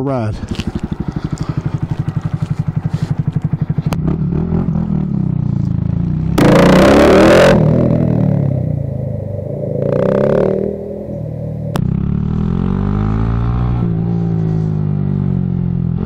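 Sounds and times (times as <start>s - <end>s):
motorcycle engine idling and revving: 0.0s - 16.0s
loud rushing noise: 6.5s - 12.6s.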